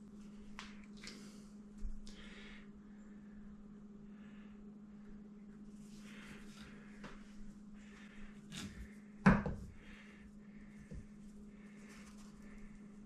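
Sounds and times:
steady low hum: 0:00.0 - 0:13.0
rustling of pasta dough: 0:05.6 - 0:13.0.

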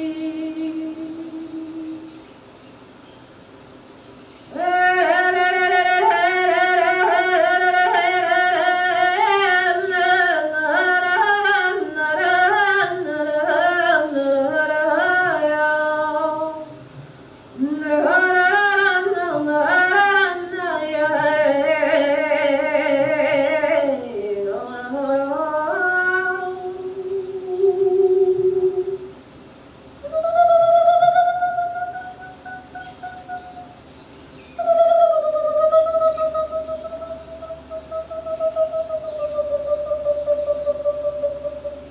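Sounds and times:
person singing unaccompanied: 0:00.0 - 0:02.4, 0:04.5 - 0:29.2, 0:30.0 - 0:33.9, 0:34.5 - 0:41.9.

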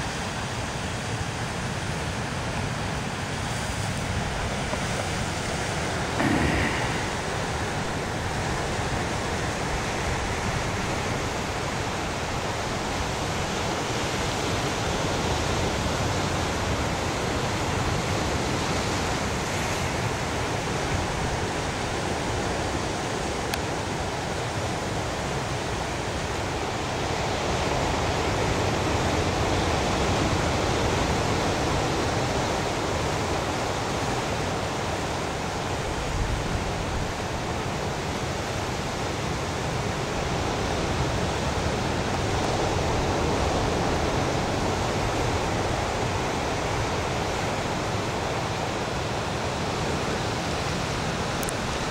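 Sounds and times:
ocean surf breaking on rocks: 0:03.2 - 0:14.5.

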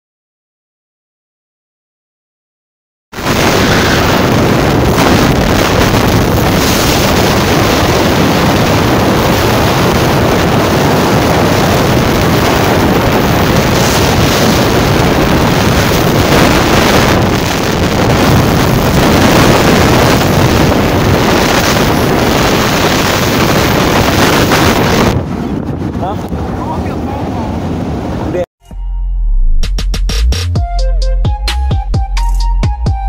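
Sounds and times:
wind buffeting microphone: 0:03.2 - 0:28.4.

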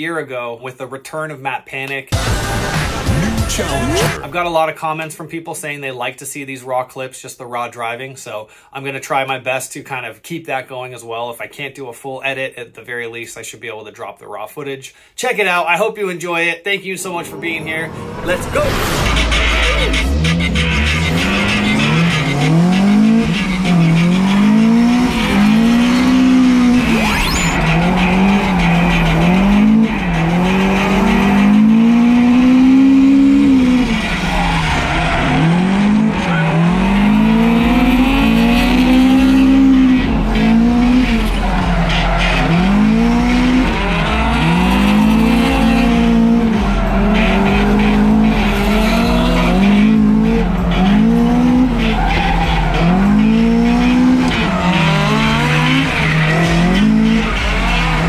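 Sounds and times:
tyres squealing and skidding: 0:17.0 - 0:58.0
car engine revving hard: 0:17.3 - 0:58.0.

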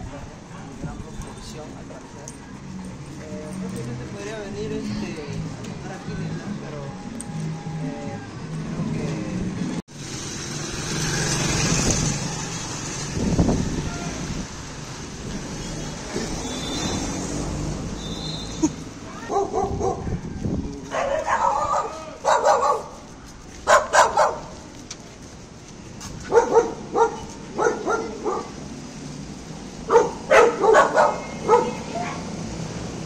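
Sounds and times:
dog barking: 0:19.3 - 0:20.2, 0:20.9 - 0:23.0, 0:23.6 - 0:24.6, 0:26.2 - 0:28.6, 0:29.9 - 0:32.0.

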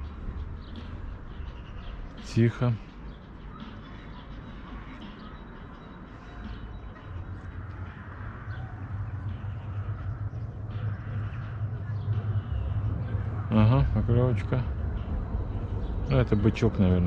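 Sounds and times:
faint bird chirps: 0:00.0 - 0:16.8
low rumble: 0:06.5 - 0:17.0.

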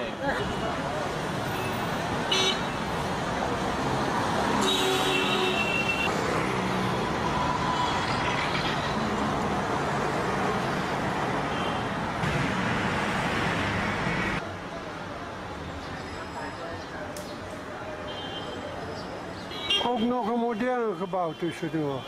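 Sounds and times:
street traffic: 0:00.0 - 0:22.0
car horn: 0:02.3 - 0:02.8, 0:04.6 - 0:06.1.

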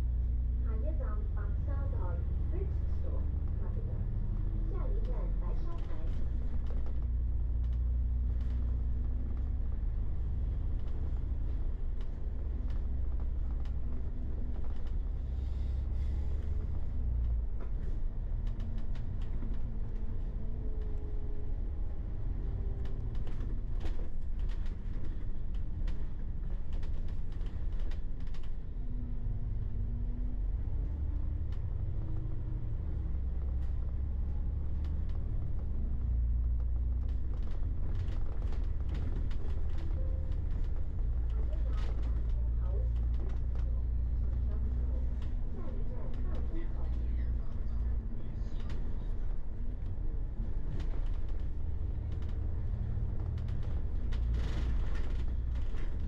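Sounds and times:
bus engine rumble: 0:00.0 - 0:56.0
interior rattling and creaking: 0:31.3 - 0:56.0.

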